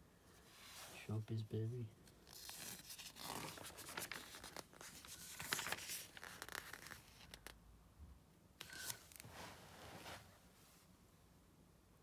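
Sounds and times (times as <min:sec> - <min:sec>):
magazine pages turning: 0:02.2 - 0:07.6, 0:08.6 - 0:09.6.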